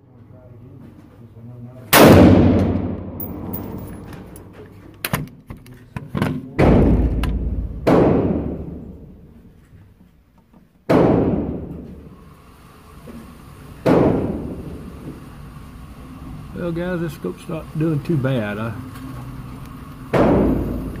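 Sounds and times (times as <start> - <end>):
rifle shots echoing: 2.0 - 3.8, 6.6 - 8.9.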